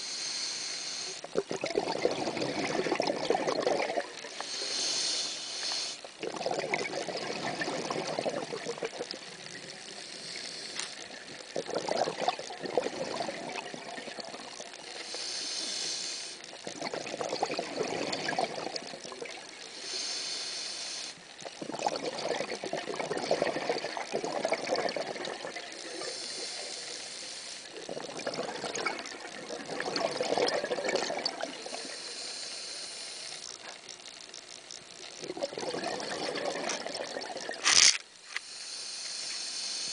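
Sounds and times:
diver inhaling through regulator: 0:00.0 - 0:01.2, 0:04.3 - 0:06.1, 0:09.9 - 0:11.1, 0:14.9 - 0:16.4, 0:19.7 - 0:21.2, 0:25.8 - 0:27.7, 0:31.5 - 0:33.5, 0:37.7 - 0:39.9
exhaled bubbles rushing: 0:01.2 - 0:04.3, 0:06.2 - 0:09.7, 0:11.3 - 0:14.8, 0:16.5 - 0:19.6, 0:21.4 - 0:26.1, 0:27.7 - 0:31.7, 0:35.2 - 0:37.7.

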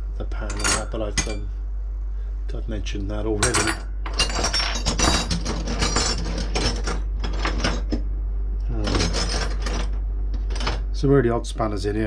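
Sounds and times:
metal spanners clinking: 0:03.4 - 0:07.9.

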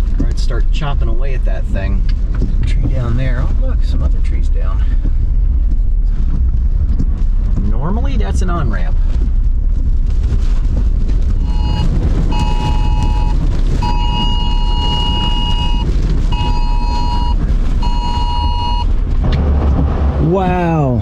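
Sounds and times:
vehicle driving on wet road: 0:00.0 - 0:21.0
high-pitched beeping: 0:11.4 - 0:18.9.

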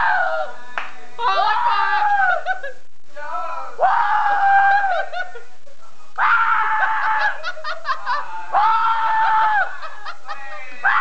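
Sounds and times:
laughter: 0:04.7 - 0:05.6, 0:07.0 - 0:08.4, 0:09.1 - 0:10.9.

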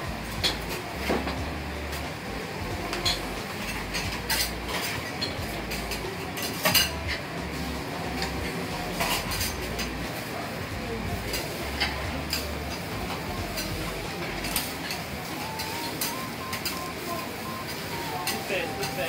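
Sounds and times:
kitchen background noise: 0:00.0 - 0:19.0.

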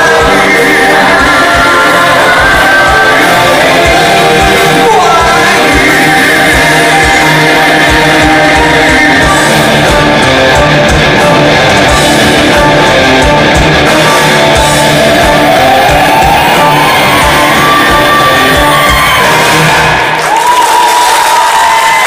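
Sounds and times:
man singing into microphone: 0:00.0 - 0:11.5
live rock band playing: 0:00.0 - 0:20.4.

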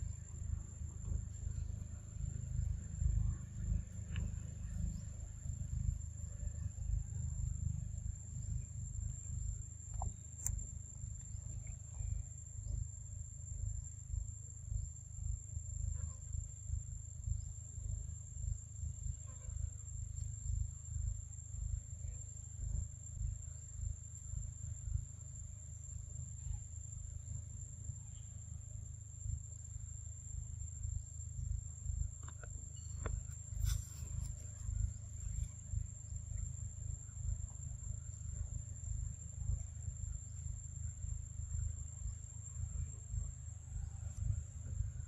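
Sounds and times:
high-pitched insect call: 0:00.0 - 0:45.0
low fluttering rumble: 0:31.7 - 0:45.0.

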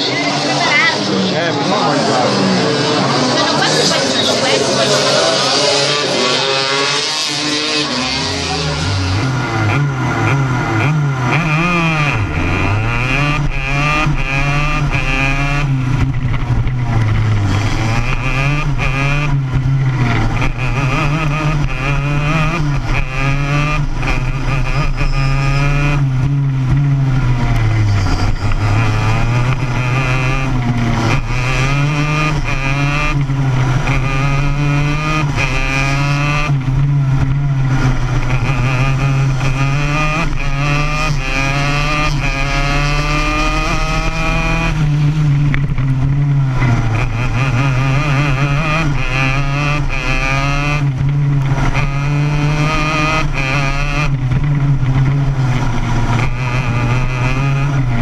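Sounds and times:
racing kart engine revving: 0:00.0 - 0:58.0.

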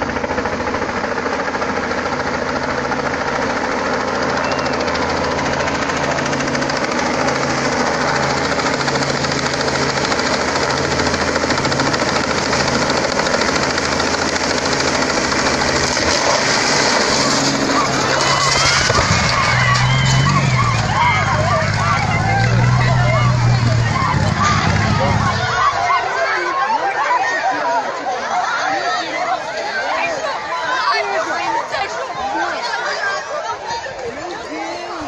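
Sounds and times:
helicopter rotor chop: 0:00.0 - 0:27.0
helicopter engine drone: 0:00.0 - 0:33.6.

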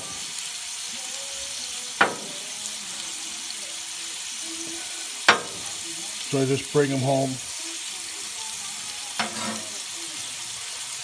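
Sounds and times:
potatoes sizzling on a griddle: 0:00.0 - 0:11.0
metal spatula scraping: 0:09.2 - 0:09.9.

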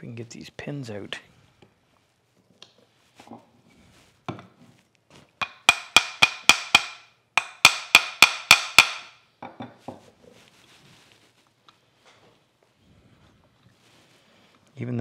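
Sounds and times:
hammer tapping on metal: 0:05.4 - 0:09.6.

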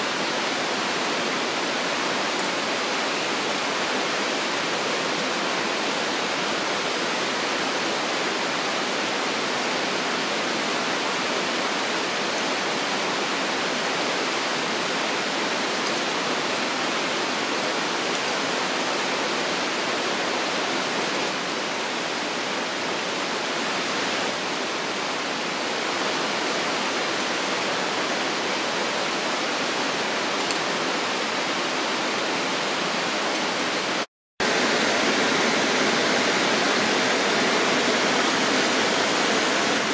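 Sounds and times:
steady rushing noise: 0:18.8 - 0:39.9.

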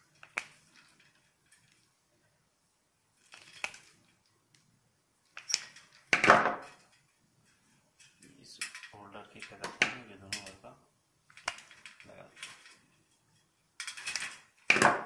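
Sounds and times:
tools clicking and scraping: 0:11.3 - 0:14.8.

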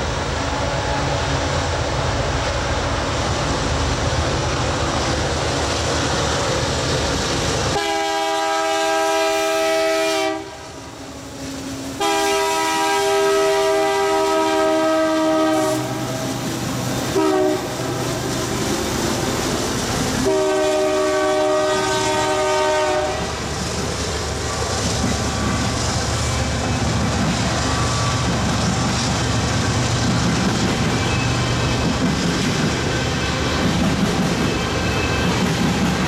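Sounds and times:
train cars rumbling past: 0:00.0 - 0:36.0
locomotive horn blasts: 0:07.7 - 0:10.8, 0:12.0 - 0:16.1, 0:17.1 - 0:17.8, 0:20.2 - 0:23.3.

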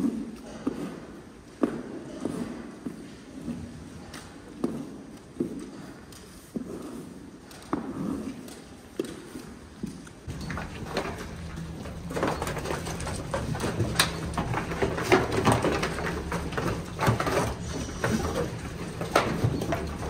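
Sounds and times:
hooves knocking on concrete: 0:09.0 - 0:20.0.

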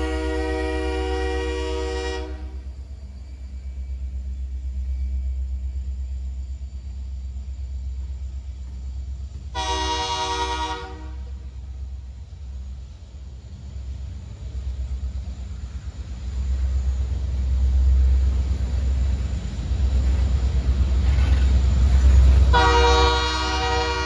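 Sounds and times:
train horn blasts: 0:00.0 - 0:02.7, 0:09.5 - 0:11.5, 0:22.5 - 0:24.0
steady low rumble: 0:00.0 - 0:24.0.

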